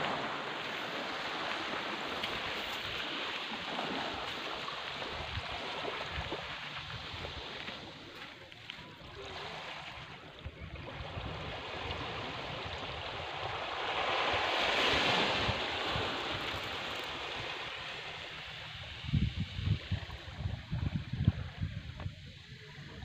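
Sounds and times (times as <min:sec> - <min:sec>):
sea waves washing onto beach: 0:00.0 - 0:23.0
wind buffeting microphone: 0:10.4 - 0:23.0.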